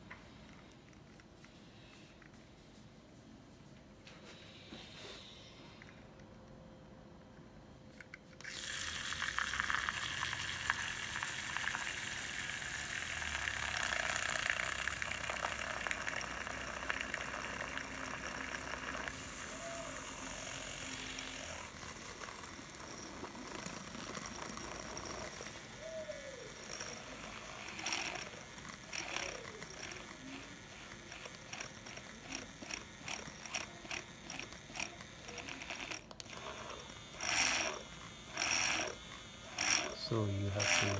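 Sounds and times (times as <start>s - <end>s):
handheld whisk whirring: 8.4s - 40.9s.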